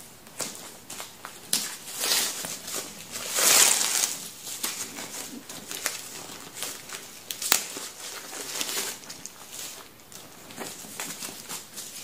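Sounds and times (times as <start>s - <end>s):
plastic wrapping crinkling: 0.3s - 12.0s.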